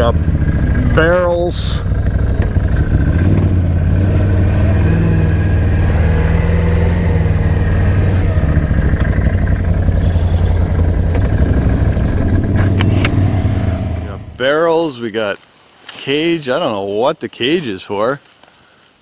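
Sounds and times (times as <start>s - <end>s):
atv engine running at low revs: 0.0s - 14.4s.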